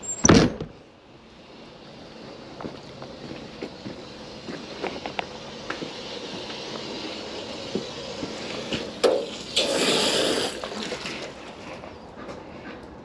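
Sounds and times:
hose spraying water into bucket: 4.6s - 11.8s.

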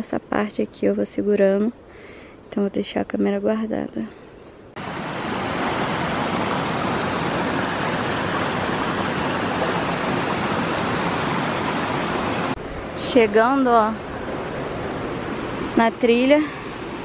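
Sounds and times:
stream rushing over rocks: 4.8s - 12.6s.

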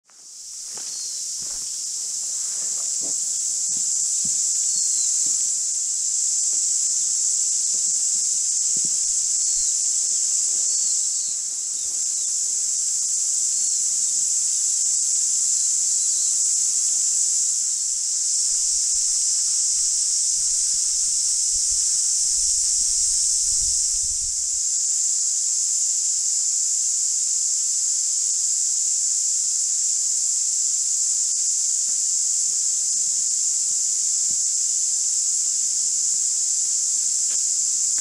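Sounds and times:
footsteps on grass: 0.0s - 5.5s, 8.7s - 9.7s, 37.3s - 38.0s
cicadas chorus: 0.0s - 38.0s.

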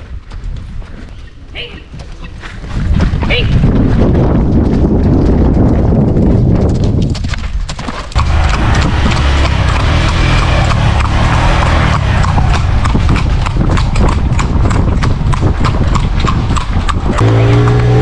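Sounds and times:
horse hooves trotting on dirt: 0.0s - 18.0s.

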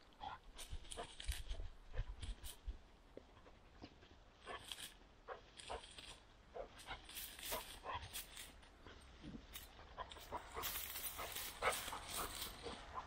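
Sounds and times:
rustle of dry grass stalks: 0.0s - 3.0s, 3.6s - 13.0s
dog panting in short puffs: 9.8s - 13.0s.

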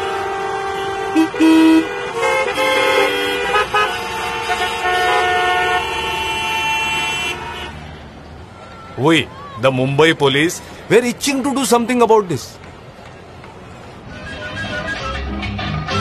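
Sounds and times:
vehicle horns honking: 0.0s - 8.0s.

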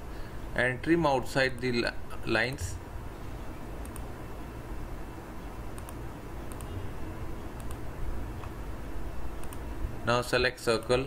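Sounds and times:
steady low background hum: 0.0s - 11.0s
faint computer mouse clicks: 3.8s - 4.1s, 5.7s - 6.8s, 7.6s - 7.8s, 9.4s - 9.6s.

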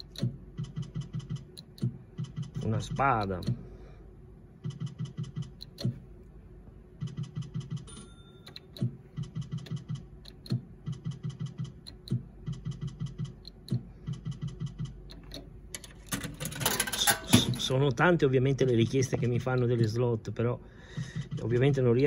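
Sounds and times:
slot machine reels ticking: 7.0s - 17.9s.

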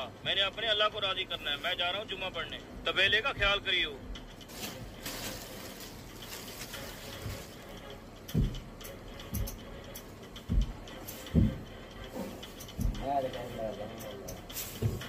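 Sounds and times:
dull knocks: 8.3s - 8.6s.

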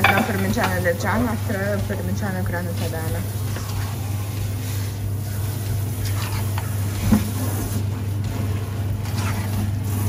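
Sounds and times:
spatula knocking against pot: 0.0s - 0.8s
low mechanical hum: 0.0s - 10.0s
spatula scraping pot: 2.8s - 9.9s.

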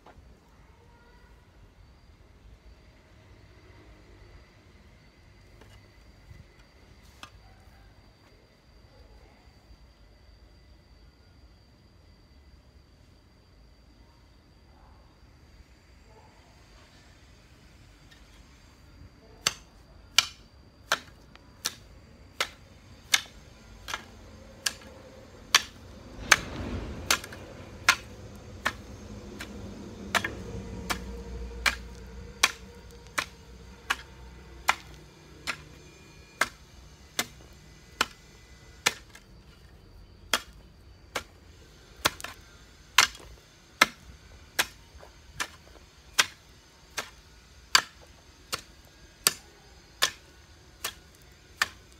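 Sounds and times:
bamboo pole knocking ground: 19.4s - 39.7s, 40.3s - 41.3s, 43.0s - 44.0s, 44.6s - 49.4s, 50.0s - 51.9s
faint low rumble: 22.8s - 36.8s.

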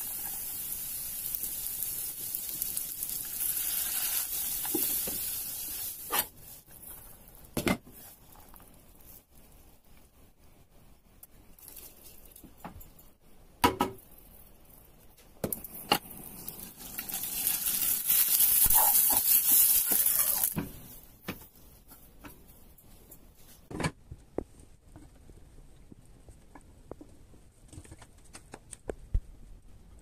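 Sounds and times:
meat sizzling in a frying pan: 0.0s - 6.6s, 16.1s - 20.6s.

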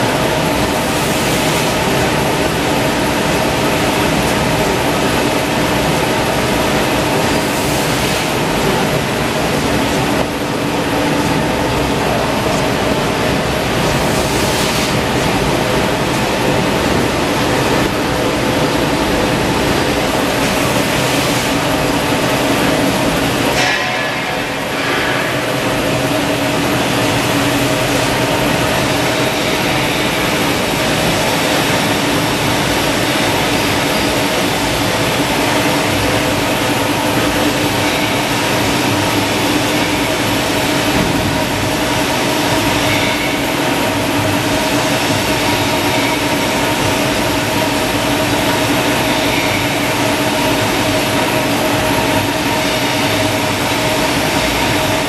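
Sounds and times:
constant machine hum: 0.0s - 55.0s
loud machinery din: 18.9s - 55.0s.

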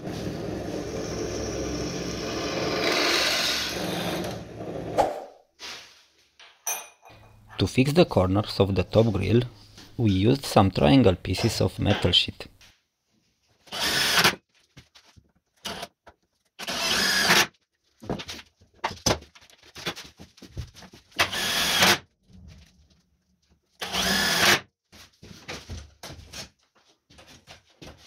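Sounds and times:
electric drill bursts: 0.0s - 4.5s, 13.7s - 14.4s, 16.6s - 17.5s, 21.3s - 22.0s, 23.8s - 24.6s.

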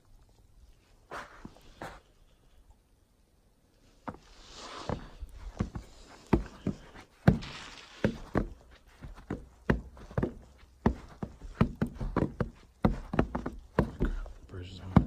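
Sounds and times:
soft rustling hiss: 0.0s - 14.9s
footsteps on wooden planks: 4.0s - 15.0s.

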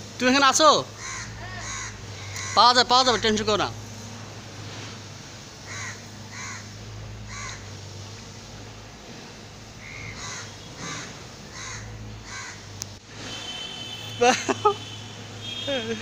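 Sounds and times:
crows cawing: 1.0s - 3.5s, 5.6s - 7.8s, 9.8s - 12.7s.

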